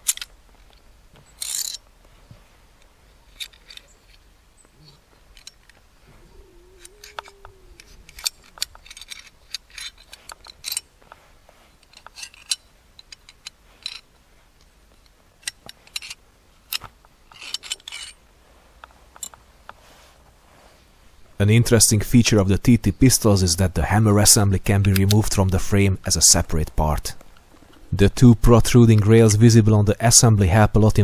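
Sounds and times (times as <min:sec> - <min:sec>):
pistol parts clicking: 0:00.0 - 0:01.9, 0:02.8 - 0:04.3, 0:05.3 - 0:05.8, 0:06.7 - 0:11.2, 0:11.8 - 0:18.2, 0:18.8 - 0:19.4, 0:24.9 - 0:25.4.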